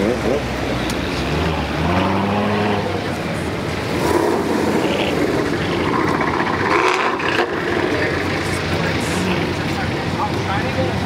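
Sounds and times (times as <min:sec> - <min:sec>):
cars driving slowly past: 0:00.0 - 0:11.0
deep exhaust note: 0:03.7 - 0:09.5.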